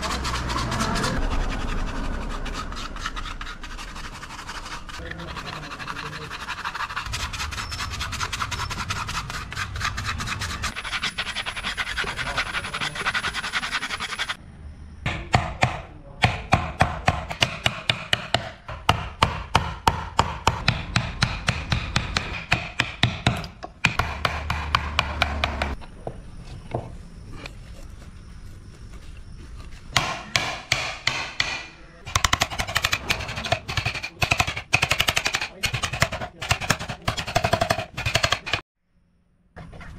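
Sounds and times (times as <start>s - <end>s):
wood being scraped by hand: 0.0s - 14.4s, 27.3s - 38.6s
mallet tapping chisel into wood: 15.1s - 25.8s, 30.0s - 38.6s.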